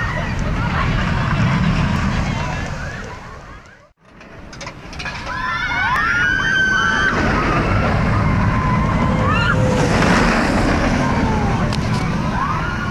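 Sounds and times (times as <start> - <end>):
roller coaster train rushing: 0.0 - 12.9
riders screaming: 5.2 - 12.9.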